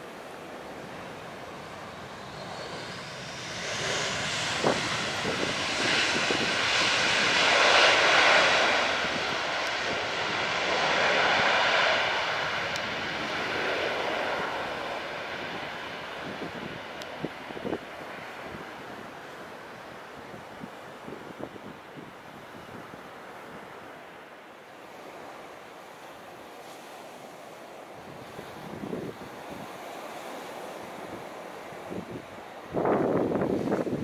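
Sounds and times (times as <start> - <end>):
jet engines roaring: 0.0 - 20.7.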